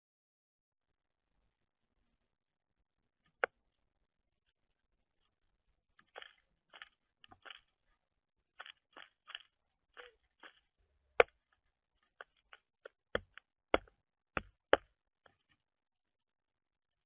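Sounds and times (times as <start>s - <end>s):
bird bill tapping on seed tray: 12.2s - 15.4s.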